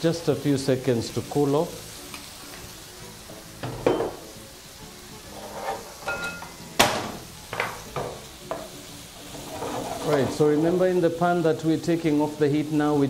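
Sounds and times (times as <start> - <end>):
vegetables sizzling on griddle: 0.0 - 13.0
utensils and dishes clinking: 3.6 - 4.3, 5.3 - 8.7, 9.3 - 10.6.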